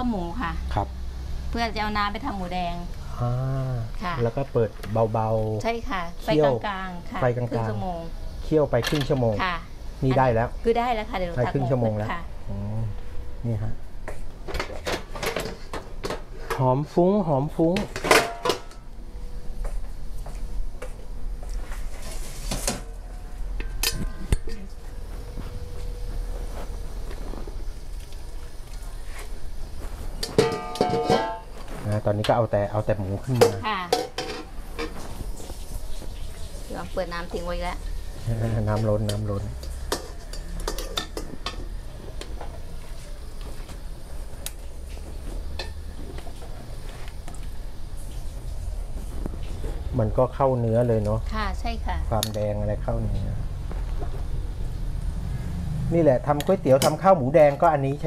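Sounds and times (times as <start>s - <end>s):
metal pots clinking: 17.8s - 18.8s, 30.2s - 32.3s, 33.3s - 35.0s, 38.6s - 42.4s, 45.5s - 46.3s
metal ladle clinking on pot: 30.2s - 31.5s
metal bowl clanging: 30.2s - 31.6s, 33.3s - 35.0s, 38.7s - 41.7s.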